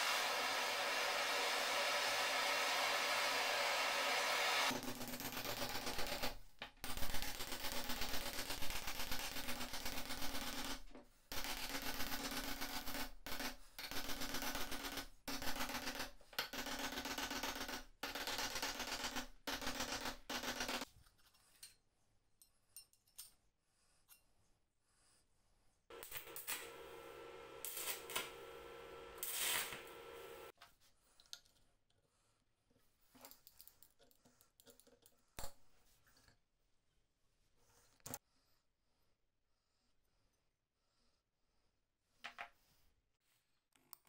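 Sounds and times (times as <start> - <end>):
gas torch rushing: 0.0 - 4.7, 25.9 - 30.5.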